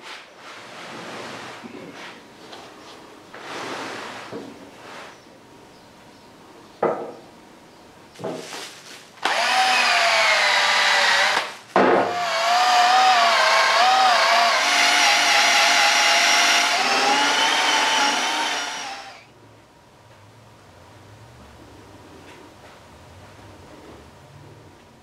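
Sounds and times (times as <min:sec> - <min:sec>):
cordless drill buffing metal: 0:09.2 - 0:11.5, 0:12.1 - 0:19.3.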